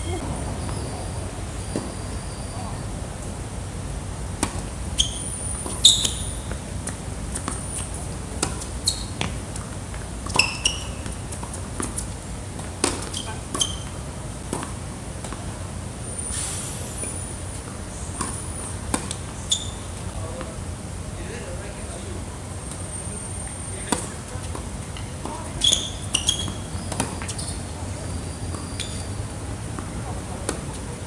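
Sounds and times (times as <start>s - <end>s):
shoes squeaking on court: 0.0s - 2.8s, 5.0s - 6.7s, 7.3s - 12.2s, 12.8s - 15.4s, 17.0s - 20.2s, 23.7s - 31.0s
tennis ball bouncing: 4.4s - 15.5s, 18.2s - 20.5s, 23.9s - 27.5s, 29.8s - 30.8s
racquets striking tennis ball: 4.4s - 15.6s, 18.2s - 20.6s, 23.9s - 27.5s.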